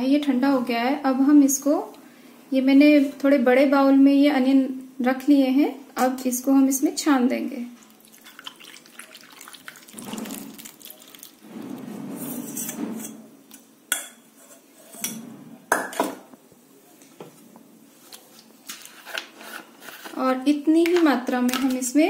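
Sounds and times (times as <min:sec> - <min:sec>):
liquid pouring through strainer: 0:07.8 - 0:12.9.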